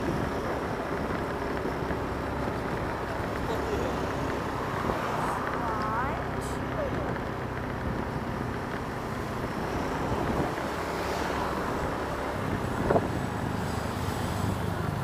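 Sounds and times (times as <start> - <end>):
scooter engine hum: 0.0 - 15.0
wind rushing over microphone: 9.6 - 10.8, 11.5 - 13.3.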